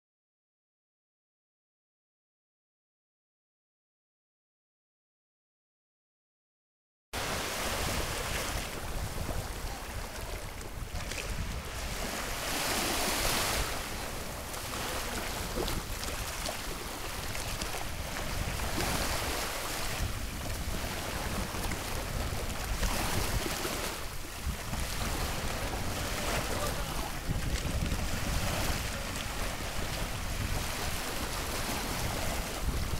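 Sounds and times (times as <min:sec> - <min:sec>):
waves washing onto beach: 0:07.2 - 0:32.9
wind rumbling on microphone: 0:07.2 - 0:32.9.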